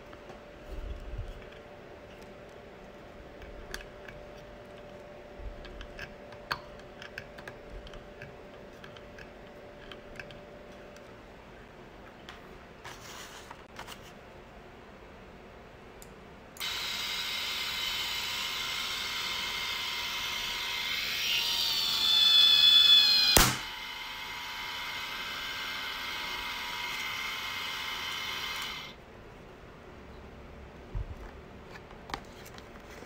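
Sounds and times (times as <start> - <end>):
electric motor whining: 16.6 - 29.0.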